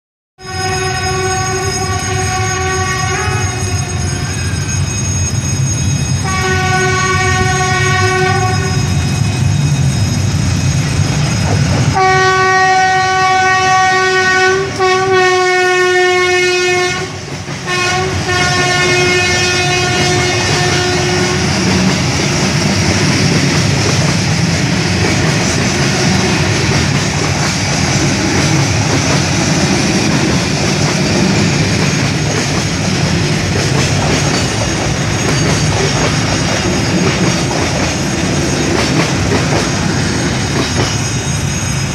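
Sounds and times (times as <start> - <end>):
locomotive horn blasts: 0.4 - 4.3, 6.2 - 9.0, 11.9 - 21.7
train wheels rumbling on rail: 0.4 - 41.9.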